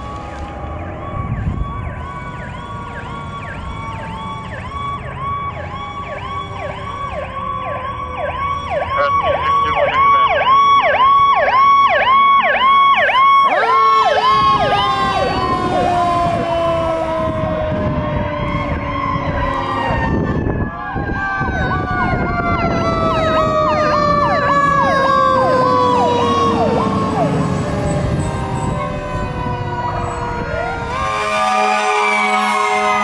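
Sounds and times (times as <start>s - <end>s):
fire truck siren yelp: 0.0s - 33.0s
siren tone sliding down: 0.0s - 33.0s.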